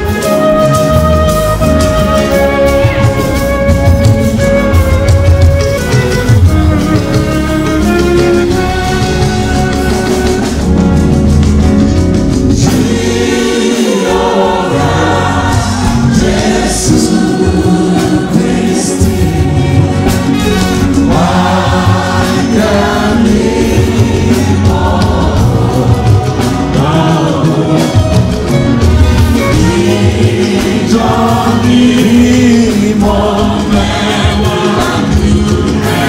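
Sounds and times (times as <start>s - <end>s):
congregation singing a hymn: 7.2s - 36.0s.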